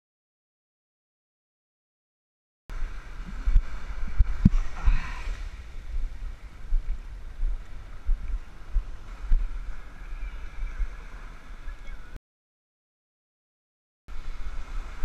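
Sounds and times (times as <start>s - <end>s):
waves washing on sandy shore: 2.7s - 12.2s, 14.1s - 15.0s
wind buffeting microphone: 2.7s - 12.2s.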